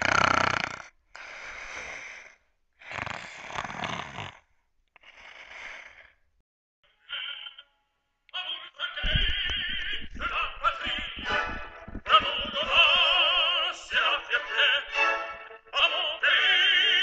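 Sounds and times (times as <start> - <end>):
person snoring: 0.0 - 6.2.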